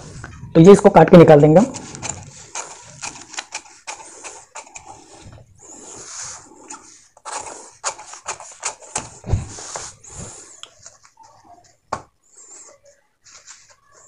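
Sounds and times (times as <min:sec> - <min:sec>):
paper rustling: 0:01.7 - 0:11.8, 0:12.4 - 0:14.0
scissors snipping paper: 0:07.2 - 0:09.2.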